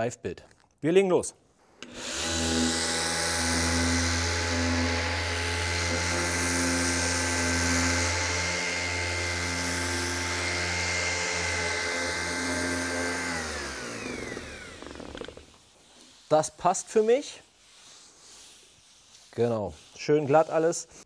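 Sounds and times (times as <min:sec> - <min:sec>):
motor spinning down: 0:01.8 - 0:15.6
orbital sander sanding wood: 0:01.8 - 0:21.0.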